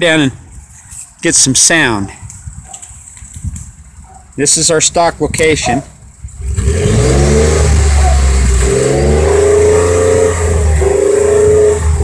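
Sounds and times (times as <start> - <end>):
truck engine revving: 6.4 - 12.0.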